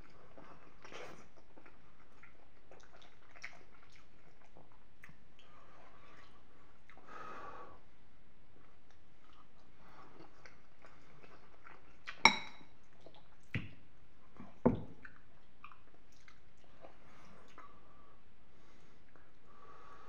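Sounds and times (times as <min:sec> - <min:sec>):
faint wet chewing: 0:00.0 - 0:07.1, 0:08.6 - 0:17.8
metal spoon knocking ceramic bowl: 0:12.3 - 0:12.6.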